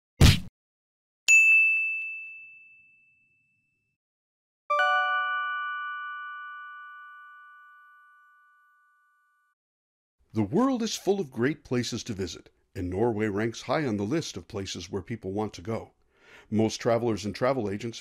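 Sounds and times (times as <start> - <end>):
low bell chime: 1.3 - 3.9, 4.7 - 9.6.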